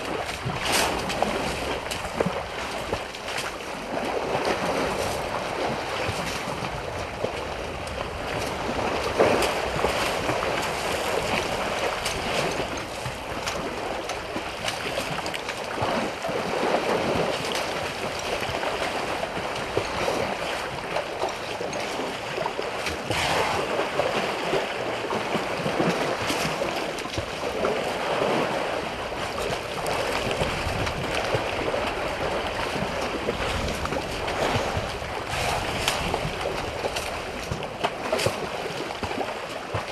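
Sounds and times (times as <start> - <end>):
sharp loud splashes: 0.0 - 3.5, 22.8 - 28.8
water splashing and sloshing: 0.0 - 39.9.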